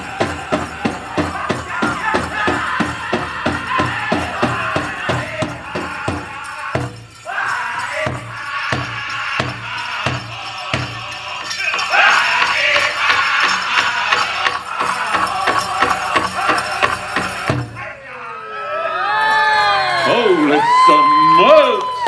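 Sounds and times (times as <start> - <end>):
big drum beating: 0.0 - 7.2
high-pitched group singing: 0.0 - 18.0.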